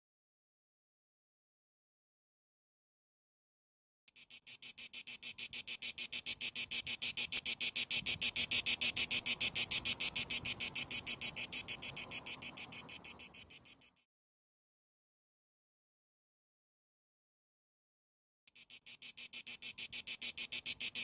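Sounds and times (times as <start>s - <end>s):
cicada pulsing buzz: 4.1s - 14.0s, 18.5s - 21.0s.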